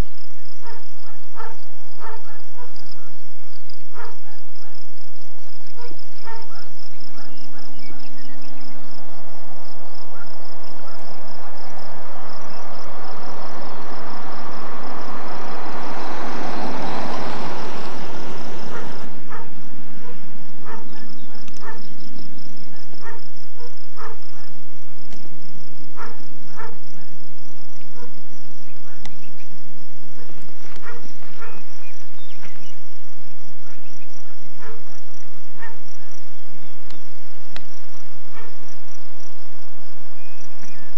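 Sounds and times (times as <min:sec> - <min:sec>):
insects chirping: 0:00.0 - 0:40.9
rushing noise: 0:08.6 - 0:26.6.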